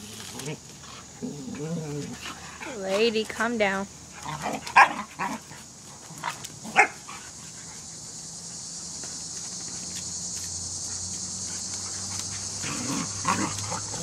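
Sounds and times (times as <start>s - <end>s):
high insect buzz: 0.0s - 14.0s
dogs growling: 0.3s - 2.9s, 4.1s - 6.9s, 11.5s - 14.0s
dogs barking: 4.2s - 5.5s, 6.7s - 7.2s.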